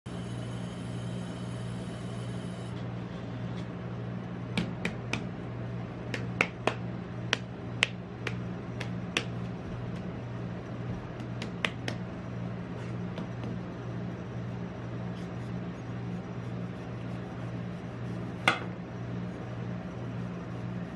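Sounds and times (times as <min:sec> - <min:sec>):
cold-plate machine humming: 0:00.1 - 0:20.9.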